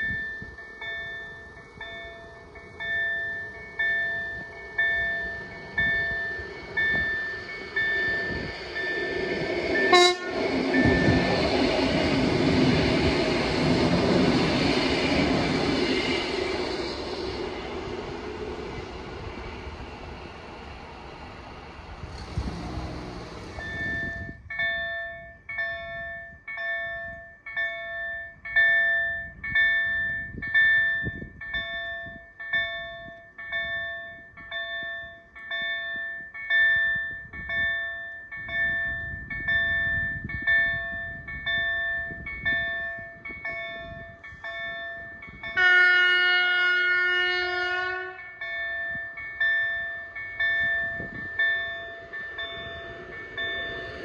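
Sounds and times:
train rumbling: 0:00.0 - 0:26.1, 0:38.4 - 0:54.0.

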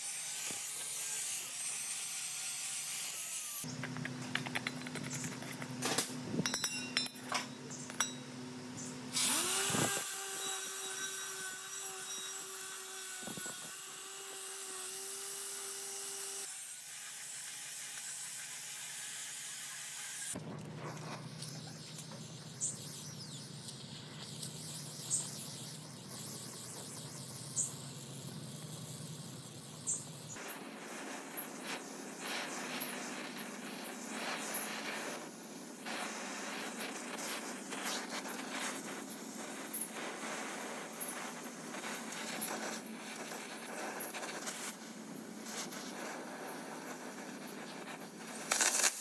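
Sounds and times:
electric motor whine: 0:09.1 - 0:20.4.

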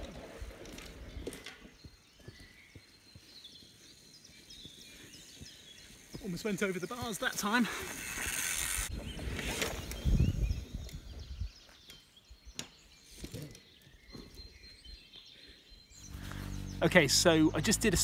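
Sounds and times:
birds chirping: 0:00.0 - 0:18.0
mountain bike rolling past: 0:05.8 - 0:10.4, 0:16.0 - 0:18.0.

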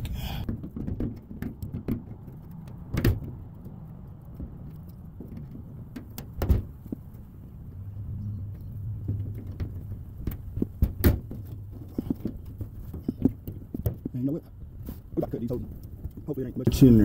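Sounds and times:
hand tools clicking and knocking: 0:00.4 - 0:07.3
low rumble: 0:02.1 - 0:13.2.

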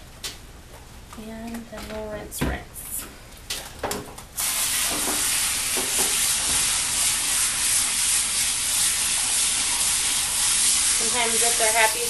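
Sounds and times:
hose sprayer hissing: 0:04.4 - 0:12.0.

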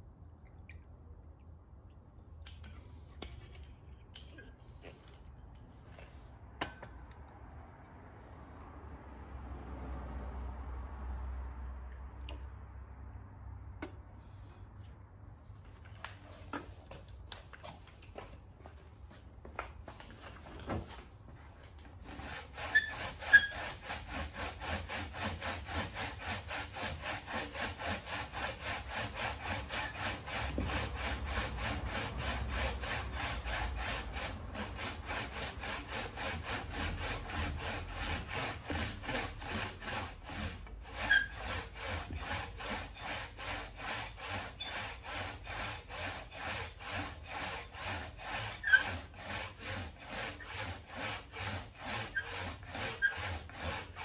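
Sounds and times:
hand saw cutting wood: 0:21.6 - 0:54.0.

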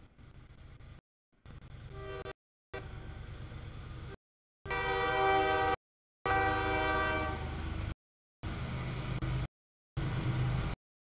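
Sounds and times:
passing train rumble: 0:00.1 - 0:10.8
locomotive horn blast: 0:01.9 - 0:02.9, 0:04.6 - 0:07.6.

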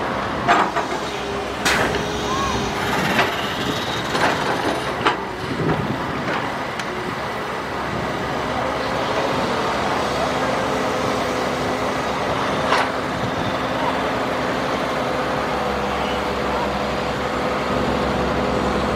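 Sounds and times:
excavator engine running: 0:00.0 - 0:18.9.

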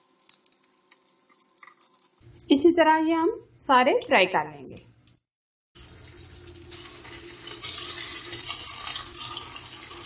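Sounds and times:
meat sizzling in oil: 0:00.0 - 0:02.7, 0:05.8 - 0:10.0.

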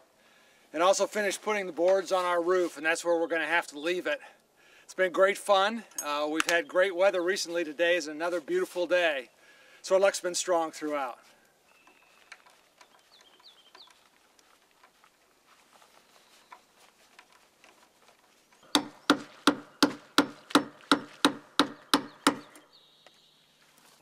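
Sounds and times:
hammer driving nails into wood: 0:18.6 - 0:22.6.

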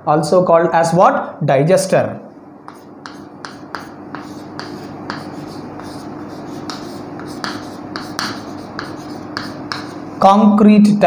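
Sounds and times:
faint steady hum: 0:00.0 - 0:11.0
chalk tapping and scratching on board: 0:02.7 - 0:10.1.

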